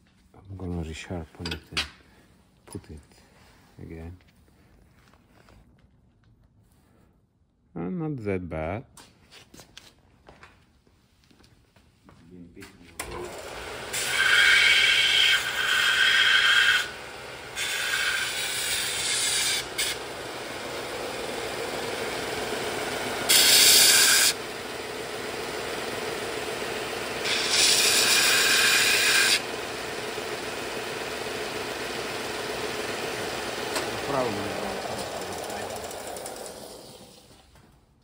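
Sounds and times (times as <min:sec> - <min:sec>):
belt grinder motor hum: 0:13.0 - 0:37.3
tool bit grinding on belt: 0:13.0 - 0:37.3.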